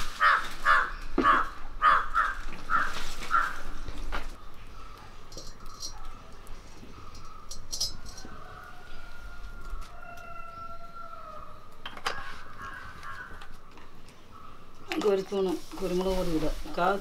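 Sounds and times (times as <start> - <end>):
wood fire crackling: 0.0 - 10.4
crow cawing: 0.2 - 3.8, 12.4 - 13.7.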